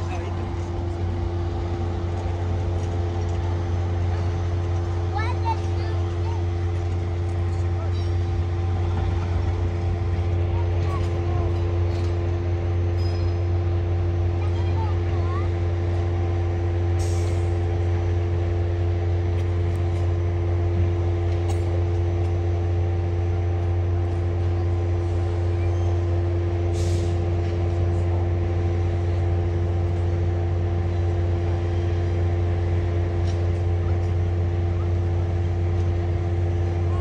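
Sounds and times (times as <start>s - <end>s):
diesel locomotive engine running: 0.0s - 37.0s
short air hisses: 26.7s - 27.2s.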